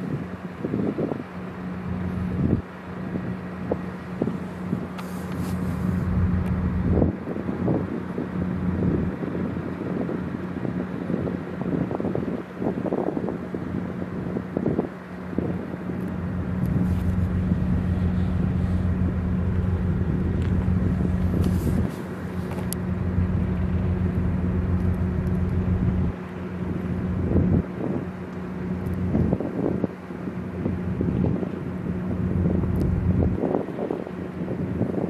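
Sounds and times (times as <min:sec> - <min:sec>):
low machinery hum: 0:00.0 - 0:35.0
wind buffeting microphone: 0:00.0 - 0:35.0.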